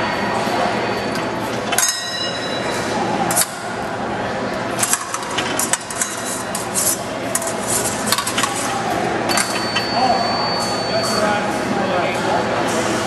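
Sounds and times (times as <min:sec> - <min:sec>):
high electronic beep: 0:09.3 - 0:11.4.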